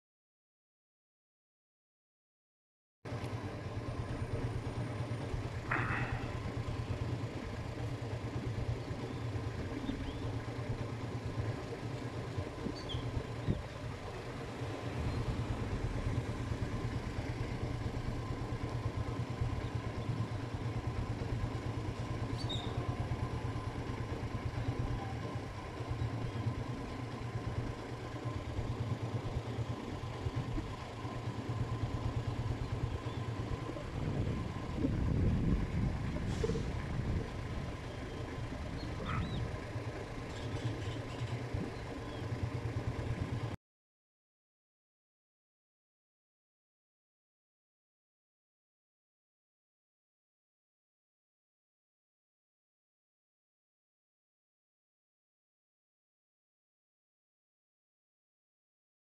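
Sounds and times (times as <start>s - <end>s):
low engine rumble: 3.1s - 43.6s.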